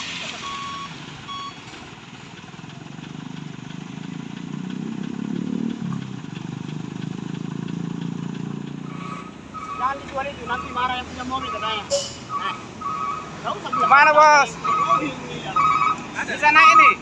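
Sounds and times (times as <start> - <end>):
diesel truck engine idling and revving: 0.0 - 17.0
reversing beep: 0.3 - 1.7, 14.6 - 16.0.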